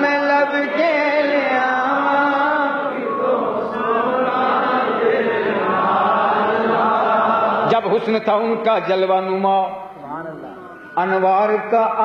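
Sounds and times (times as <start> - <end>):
crowd chanting together: 0.0 - 8.0
man chanting over sound system: 7.6 - 12.0.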